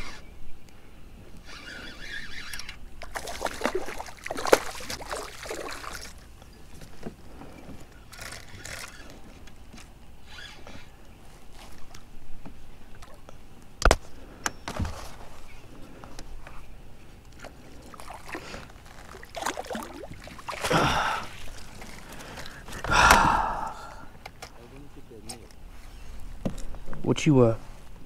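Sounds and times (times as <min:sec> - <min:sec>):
fishing reel cranking: 0:01.5 - 0:02.8
gear rubbing and scraping: 0:01.5 - 0:02.8.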